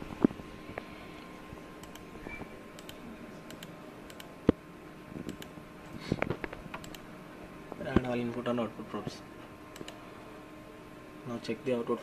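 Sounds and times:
faint steady hum: 0:00.0 - 0:12.0
computer mouse clicks: 0:00.7 - 0:04.6, 0:05.2 - 0:05.5, 0:06.3 - 0:07.1, 0:09.7 - 0:10.0
keyboard clicks: 0:01.8 - 0:02.1, 0:02.8 - 0:04.6, 0:05.2 - 0:05.5, 0:06.7 - 0:07.0, 0:09.7 - 0:10.0.

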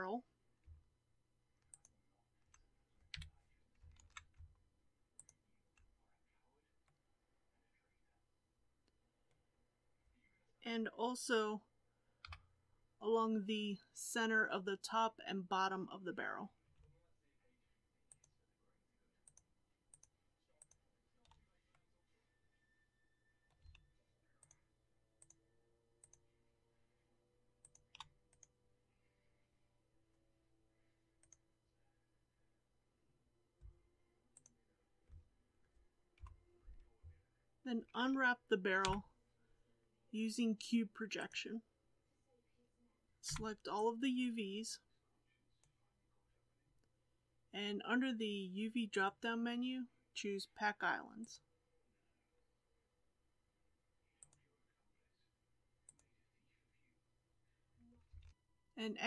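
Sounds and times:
faint mouse and keyboard clicks: 0:38.8 - 0:39.1, 0:55.8 - 0:56.1, 0:58.0 - 0:58.4.

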